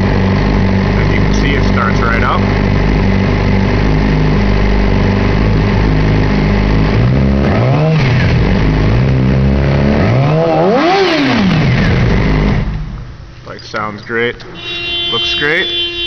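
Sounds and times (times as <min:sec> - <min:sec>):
motorcycle engine idling and revving: 0:00.0 - 0:13.3.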